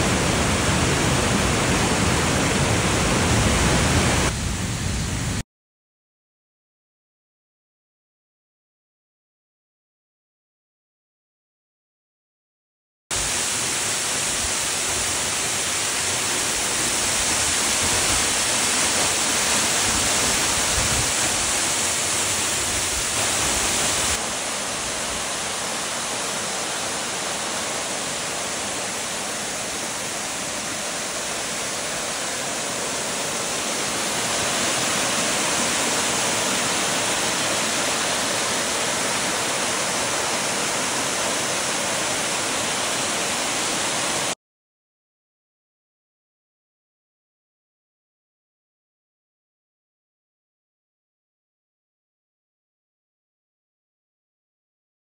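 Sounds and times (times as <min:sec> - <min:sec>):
waterfall rushing: 0:00.0 - 0:05.4, 0:13.2 - 0:44.4.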